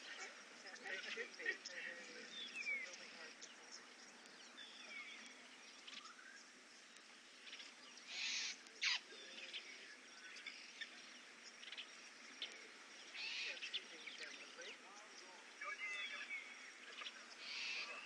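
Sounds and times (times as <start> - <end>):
wild dogs twittering calls: 8.0 - 9.8, 12.3 - 13.9, 15.6 - 18.0.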